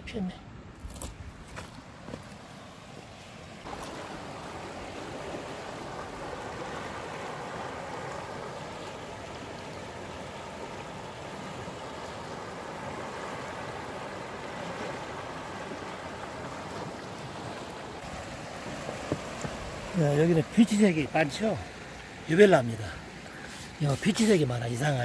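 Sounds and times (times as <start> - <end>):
river rushing over rocks: 3.6 - 23.2.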